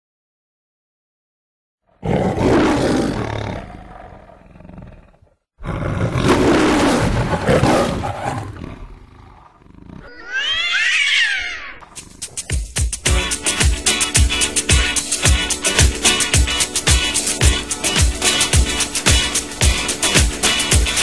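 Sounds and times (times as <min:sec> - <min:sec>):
lion roaring: 0:01.9 - 0:12.5.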